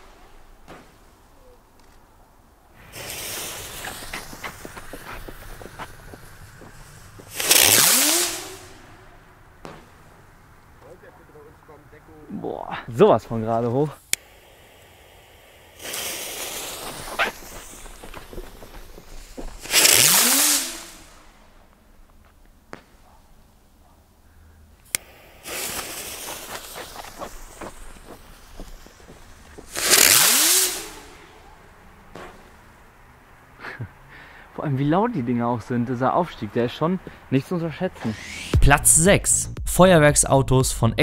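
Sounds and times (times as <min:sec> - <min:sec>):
firework hissing: 0:02.7 - 0:12.2, 0:13.9 - 0:21.6, 0:24.8 - 0:34.1, 0:37.9 - 0:39.5
firework whoosh rising: 0:02.8 - 0:11.8, 0:14.1 - 0:21.5, 0:24.9 - 0:33.4, 0:37.8 - 0:39.6.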